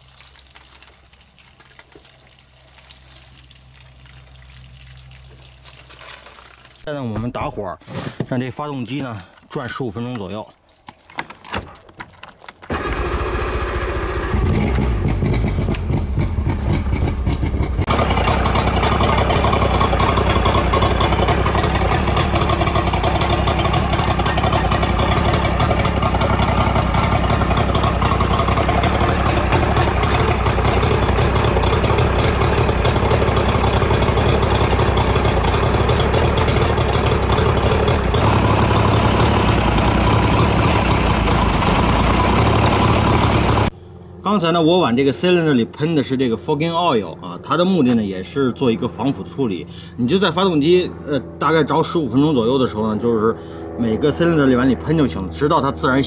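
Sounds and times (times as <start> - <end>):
outboard motor starting and running: 8.8 - 44.8.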